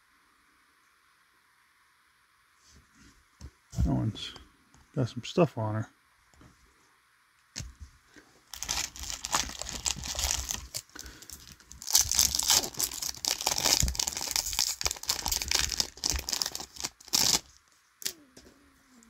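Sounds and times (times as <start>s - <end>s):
foil wrapper crinkling and tearing: 8.5s - 18.2s.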